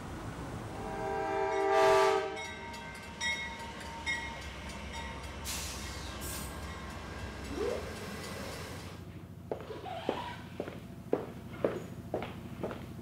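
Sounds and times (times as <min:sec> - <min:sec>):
train rumbling past: 0:00.0 - 0:13.0
locomotive horn blast: 0:00.7 - 0:02.7.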